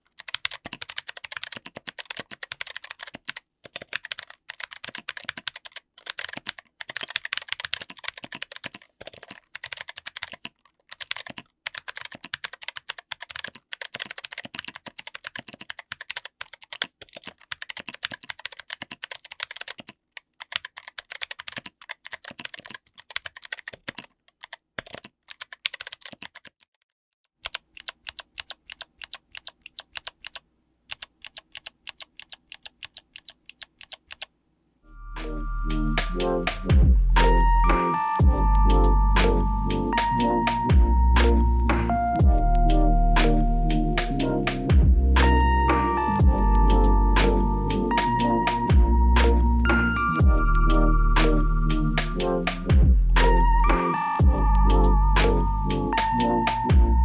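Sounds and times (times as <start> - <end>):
clicky mechanical keyboard typing: 0.0 - 26.8, 27.4 - 34.3, 45.2 - 49.4.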